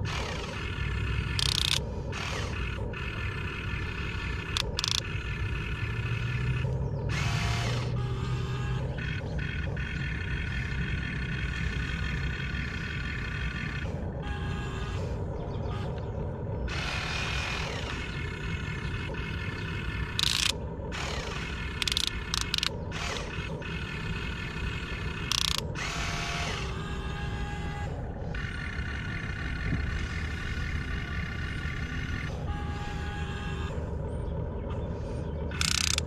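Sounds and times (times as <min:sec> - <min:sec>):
electric motors and gearboxes whining: 0:00.0 - 0:36.0.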